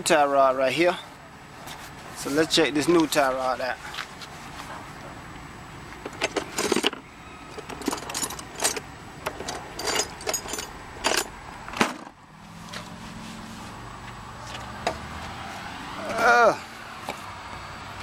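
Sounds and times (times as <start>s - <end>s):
hard objects clicking and rattling: 6.0s - 12.2s.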